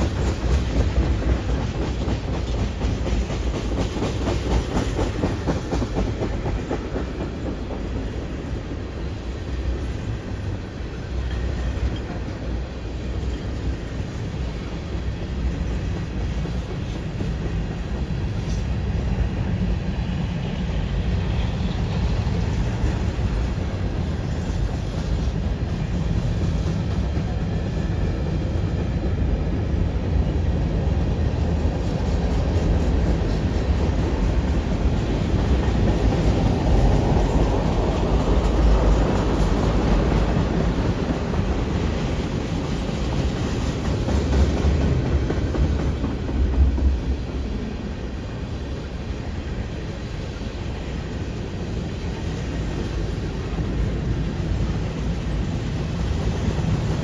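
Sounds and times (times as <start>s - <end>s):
wheels clacking over rail joints: 0.0s - 9.0s, 31.0s - 47.6s
steel wheels rumbling on rail: 0.0s - 57.0s.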